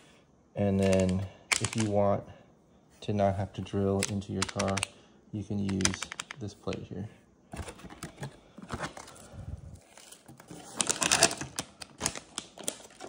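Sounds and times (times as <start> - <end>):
plastic bag crinkling: 0.8 - 2.0, 7.6 - 13.0.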